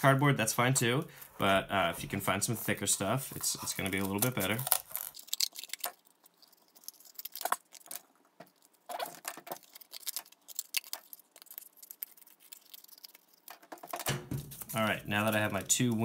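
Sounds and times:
cardboard rustling: 13.6 - 16.0.

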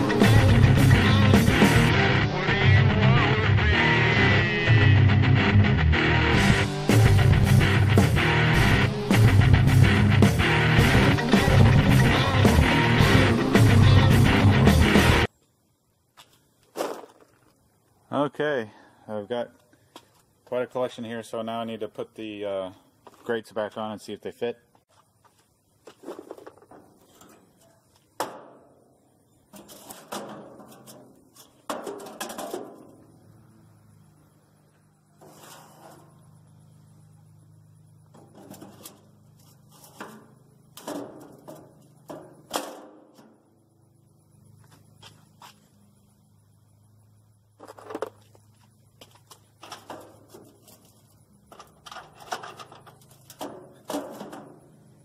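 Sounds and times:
metal grill grates clanking: 29.5 - 33.0, 35.2 - 36.3, 38.1 - 43.4, 49.6 - 54.9.

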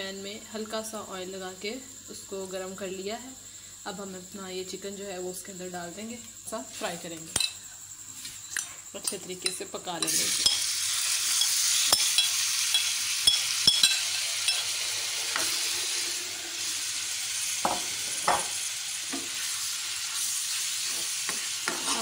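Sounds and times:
metal spoon clinking: 9.4 - 10.6, 11.3 - 14.7
chicken sizzling in frying pan: 10.0 - 22.0
spoon scraping: 11.3 - 15.6.

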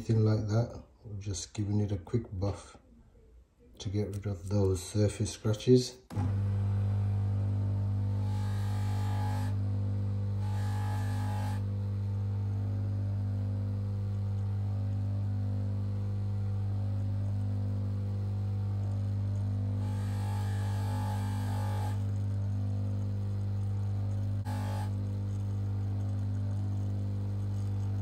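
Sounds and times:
polishing motor humming: 6.1 - 28.0.

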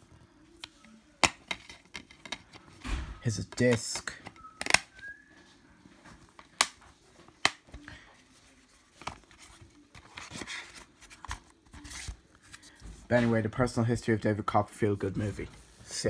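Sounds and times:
plastic case clicks: 3.5 - 4.9.

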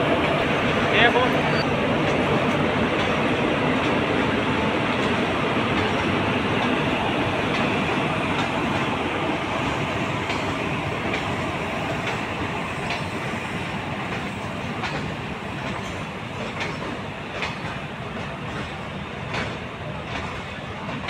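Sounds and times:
train wheels rumbling on rail: 0.0 - 21.0
wheels clicking over rail joints: 14.0 - 21.0.

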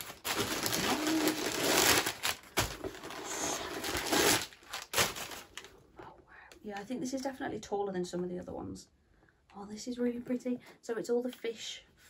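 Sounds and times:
packing paper crinkling: 0.0 - 5.8.

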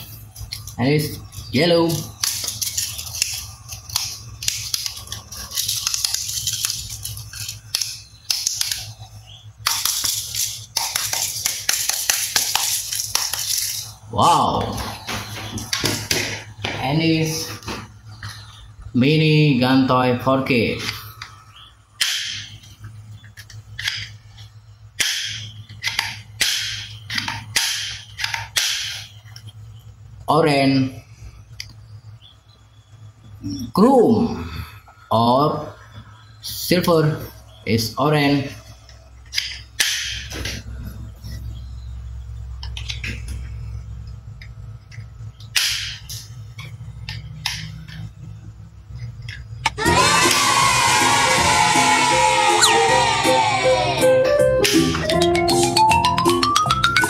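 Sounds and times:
steady low hum: 0.0 - 53.6
toy pistol snapping: 22.0 - 22.5.

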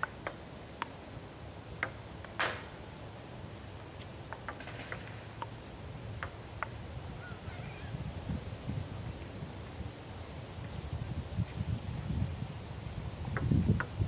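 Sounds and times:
table tennis balls clicking: 4.3 - 5.6.

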